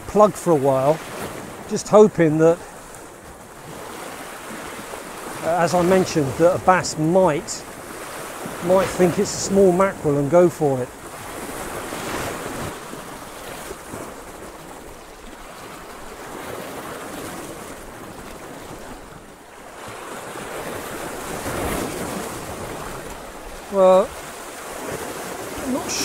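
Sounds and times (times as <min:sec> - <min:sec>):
sea waves breaking on rocks: 0:00.0 - 0:26.0.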